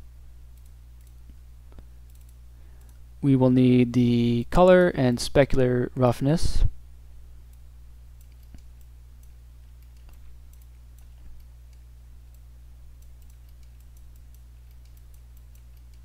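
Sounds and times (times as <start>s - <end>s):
low electrical hum: 0.0s - 16.0s
mouse and keyboard clicks: 9.8s - 11.8s, 13.0s - 16.0s.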